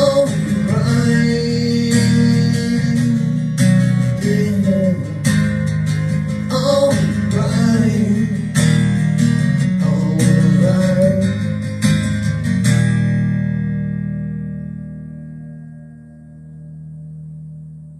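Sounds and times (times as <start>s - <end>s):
person singing: 0.0s - 5.3s, 6.5s - 8.6s, 9.7s - 11.6s
strummed acoustic guitar: 0.0s - 17.9s.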